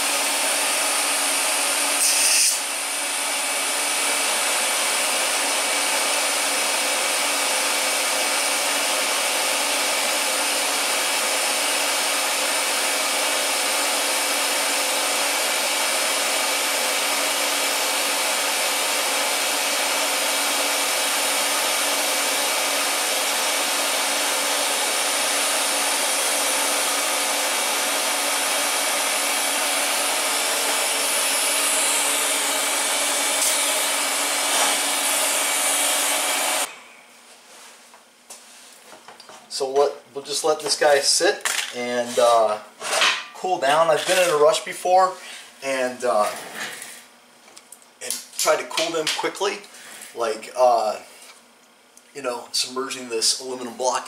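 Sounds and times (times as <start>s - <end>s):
welding arc hiss: 1.9s - 2.7s
respirator blower hum: 14.9s - 37.1s.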